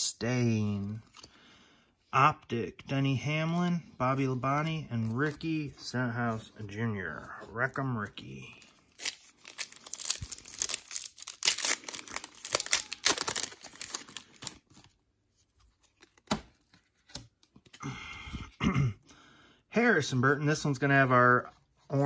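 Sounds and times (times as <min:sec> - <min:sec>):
foil wrapper tearing and crinkling: 0:08.9 - 0:14.9.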